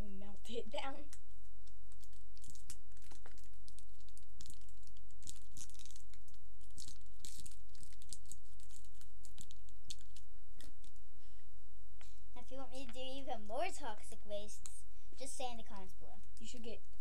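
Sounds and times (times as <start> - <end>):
candy wrappers crinkling and tearing: 1.6 - 11.0.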